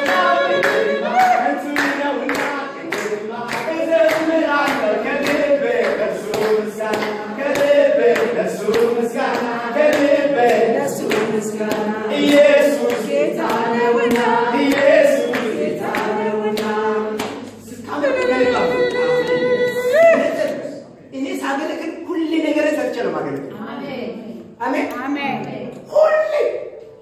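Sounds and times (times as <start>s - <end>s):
people clapping: 0.0s - 20.6s
congregation singing: 0.0s - 20.9s.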